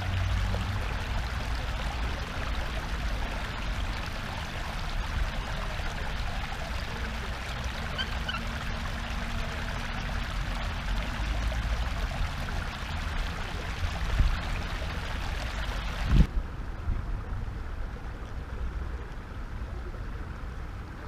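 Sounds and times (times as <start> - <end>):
water rushing: 0.0 - 16.3
wind rumble on microphone: 9.6 - 21.0.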